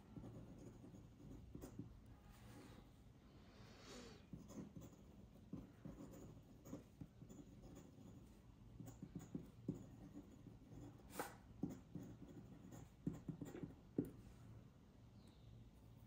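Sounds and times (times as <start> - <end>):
pen nib scratching on paper: 0.0 - 1.9, 4.3 - 14.2.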